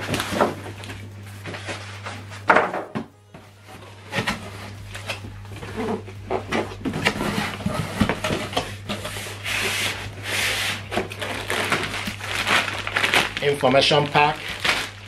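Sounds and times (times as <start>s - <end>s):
steady low hum: 0.0s - 15.0s
cardboard box flaps rubbing: 5.5s - 11.8s.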